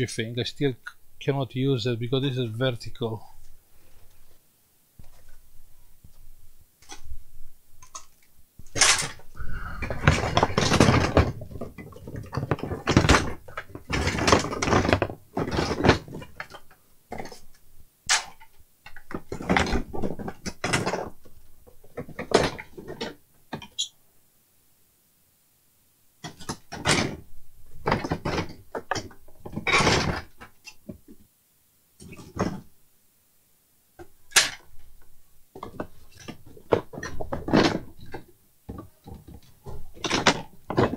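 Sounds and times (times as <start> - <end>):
parts clattering and scraping: 7.8 - 17.5.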